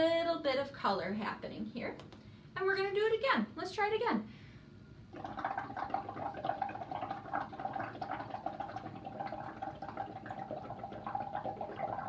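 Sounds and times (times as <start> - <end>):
bubbling through a straw in water: 5.1 - 12.0.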